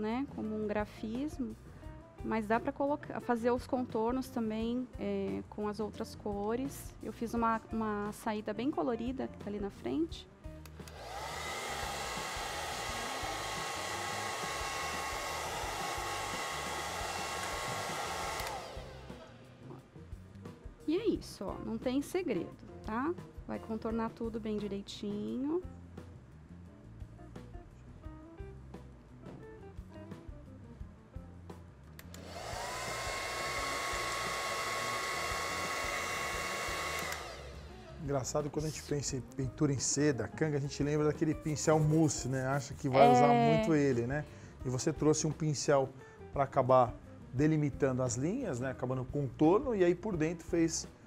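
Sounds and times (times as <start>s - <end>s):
hair dryer blowing: 10.7s - 19.7s, 32.0s - 38.8s.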